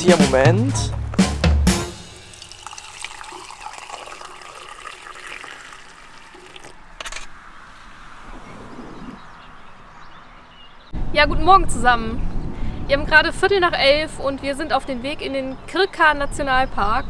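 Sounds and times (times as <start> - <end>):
running water splashing: 1.9 - 6.9.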